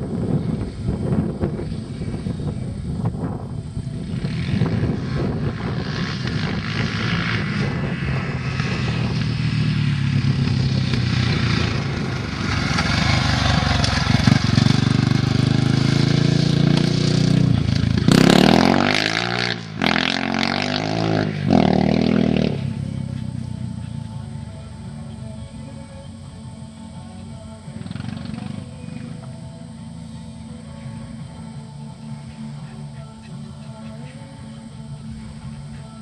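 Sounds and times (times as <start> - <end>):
dirt bike engine revving: 4.0 - 25.2.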